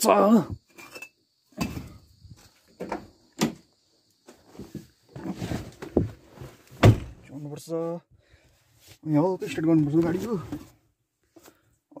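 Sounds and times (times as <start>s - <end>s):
knocks of person climbing into car: 4.8s - 7.2s
car door shutting: 6.8s - 7.2s.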